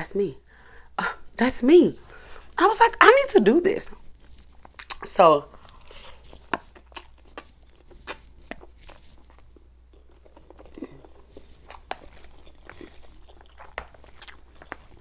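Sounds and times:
chewing: 3.9s - 15.0s
wet mouth smacks: 4.6s - 5.1s, 6.4s - 9.0s.

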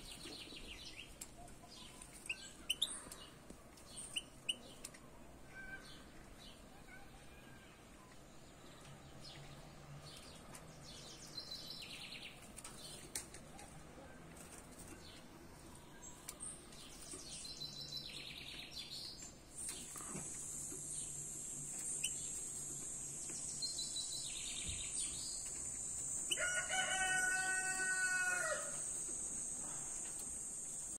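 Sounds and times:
songbirds trilling: 16.0s - 30.9s
rooster crowing: 26.3s - 28.8s.

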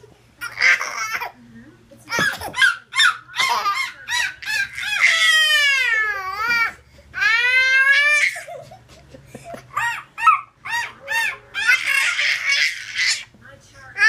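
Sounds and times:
baby laughing squeals: 2.1s - 8.8s, 9.7s - 13.3s.

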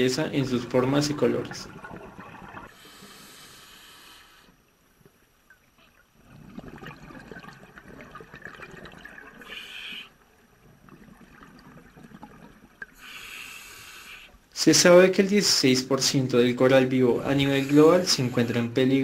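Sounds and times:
water sloshing and trickling: 0.0s - 2.9s, 4.6s - 13.1s.

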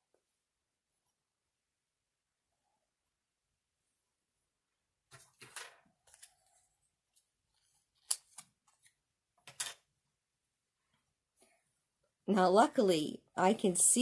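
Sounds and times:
paper rustle: 5.1s - 9.8s.

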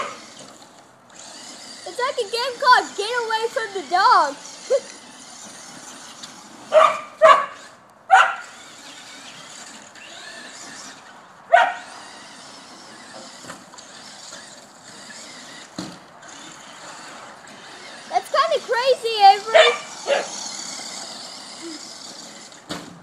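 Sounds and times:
toy car motor whining: 0.0s - 23.0s
dog barking: 6.7s - 8.5s, 11.5s - 11.8s, 19.5s - 20.4s.

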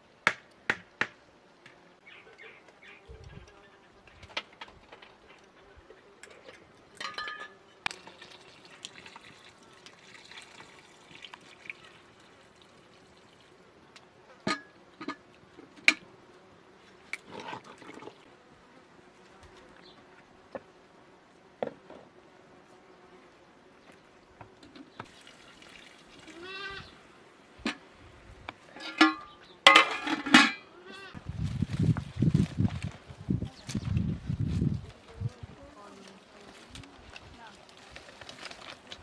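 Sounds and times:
metal pots clinking: 7.0s - 7.6s, 14.5s - 15.2s, 28.7s - 30.6s.

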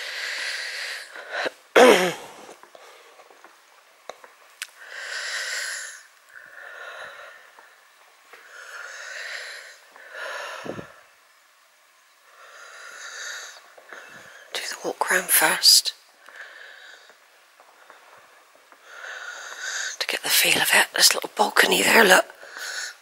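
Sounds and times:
person breathing and whispering: 12.9s - 17.1s.

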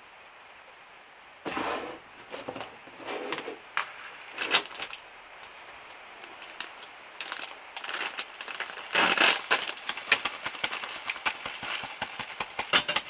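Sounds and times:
plastic bag crinkling: 4.2s - 13.0s.

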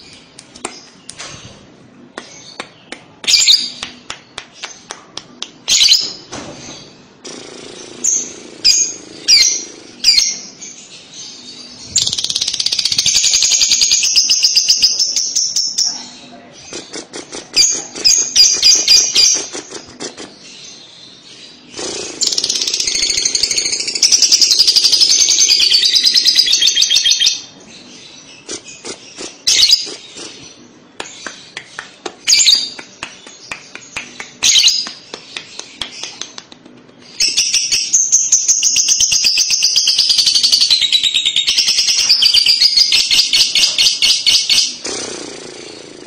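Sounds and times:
bird chirps and clicks: 28.4s - 30.4s, 31.0s - 37.9s.

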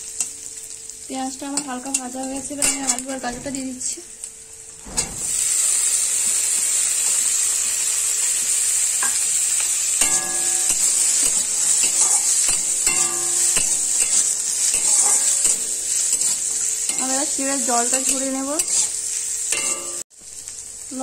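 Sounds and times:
vegetables sizzling in hot oil: 0.0s - 21.0s
metal spatula scraping pan: 10.0s - 20.0s.

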